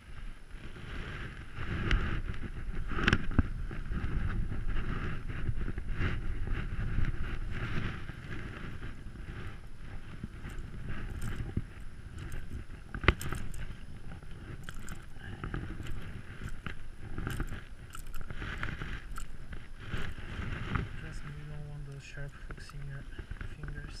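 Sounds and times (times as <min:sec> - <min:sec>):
rain jacket rustling: 0:00.0 - 0:24.0
wind buffeting microphone: 0:00.0 - 0:24.0.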